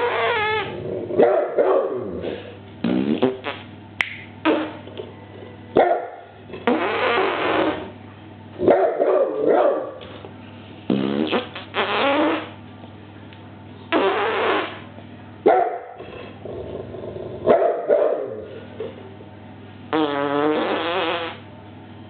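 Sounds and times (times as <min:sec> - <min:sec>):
fart sounds: 0:00.0 - 0:00.8, 0:02.8 - 0:03.7, 0:04.4 - 0:05.1, 0:06.5 - 0:08.0, 0:10.9 - 0:12.6, 0:13.9 - 0:14.9, 0:19.9 - 0:21.5
dog barking and growling: 0:00.0 - 0:02.5, 0:08.6 - 0:10.0, 0:15.5 - 0:19.0.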